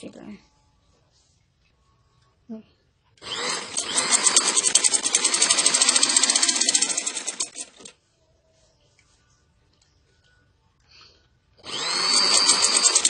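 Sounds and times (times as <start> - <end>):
sewing machine stitching: 3.2 - 7.9, 11.6 - 13.0.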